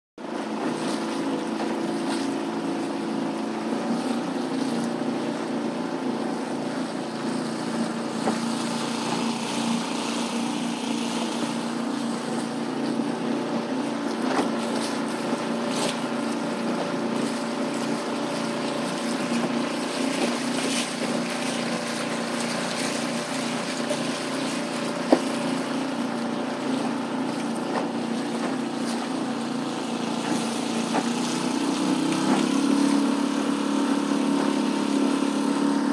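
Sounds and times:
outboard motor running: 0.2s - 35.9s
water splashing against hull: 0.2s - 35.9s.

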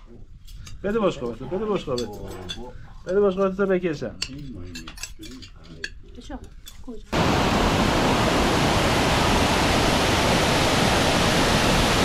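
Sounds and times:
cutlery clinking on plates: 1.7s - 3.2s, 4.2s - 7.1s
waterfall rushing over rocks: 7.2s - 12.0s.

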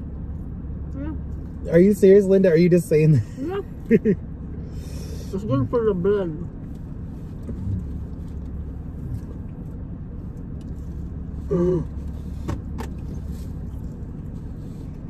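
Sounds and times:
car idling hum: 0.0s - 15.0s.

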